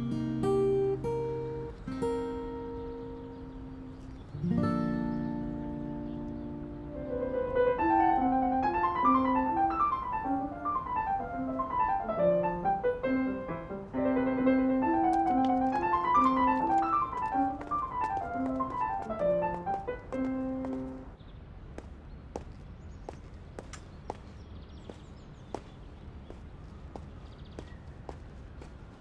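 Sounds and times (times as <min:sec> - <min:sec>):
solo piano music: 0:06.2 - 0:21.2.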